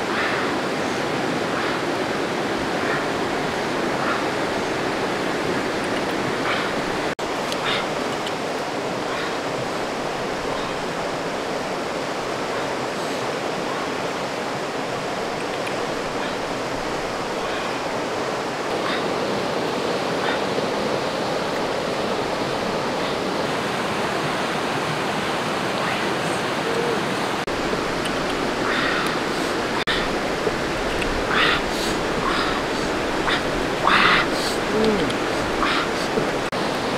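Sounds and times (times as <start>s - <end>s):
rushing river rapids: 0.0s - 36.9s
faint clicks: 7.5s - 8.4s, 15.4s - 15.9s, 28.0s - 28.4s.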